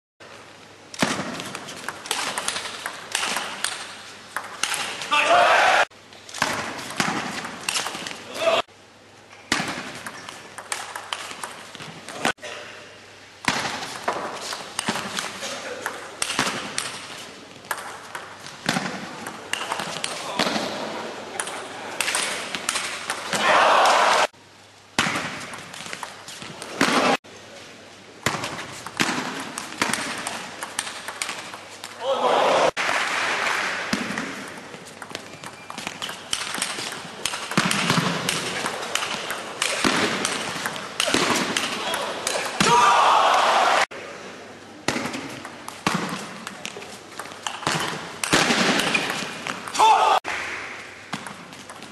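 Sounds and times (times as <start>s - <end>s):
table tennis ball clicking: 29.9s - 31.6s.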